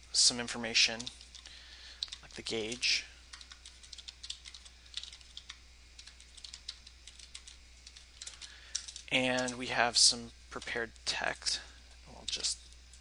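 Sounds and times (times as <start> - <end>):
computer keyboard typing: 0.9 - 9.6, 12.1 - 13.0.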